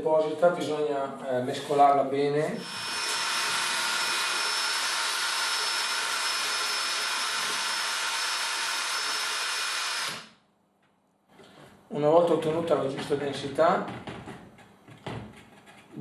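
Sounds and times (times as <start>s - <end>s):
electric drill mixer whining: 2.6s - 10.4s.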